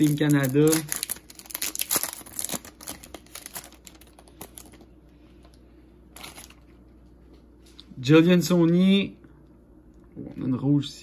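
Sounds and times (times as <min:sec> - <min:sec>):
card rustle: 0:00.0 - 0:04.9, 0:06.1 - 0:06.7.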